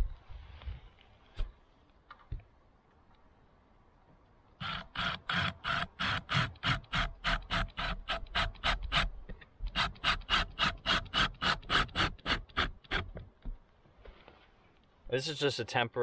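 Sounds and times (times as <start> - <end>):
hand tool scraping wood: 4.6 - 9.1, 9.7 - 13.2.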